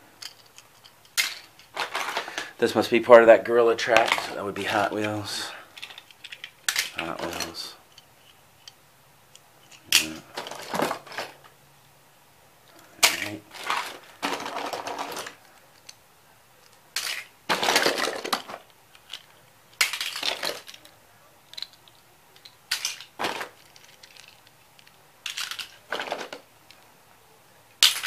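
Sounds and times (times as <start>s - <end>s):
toy cars clinking together: 0.2s - 2.5s, 3.8s - 8.8s, 16.6s - 26.4s, 27.8s - 28.0s.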